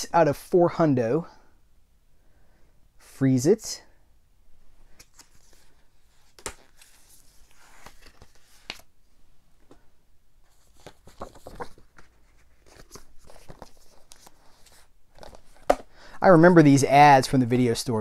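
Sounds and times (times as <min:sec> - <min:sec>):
cardboard packaging rustling: 0:10.5 - 0:15.9.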